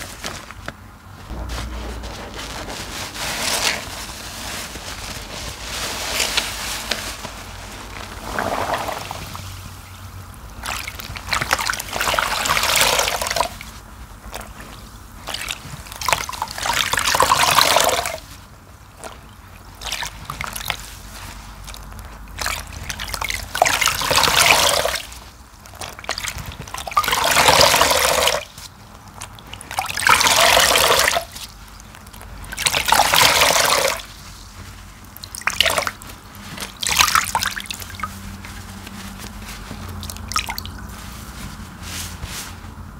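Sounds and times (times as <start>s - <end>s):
sponge squeezed in water: 1.2s - 42.6s
water trickling and splashing: 8.2s - 14.6s, 19.0s - 41.3s.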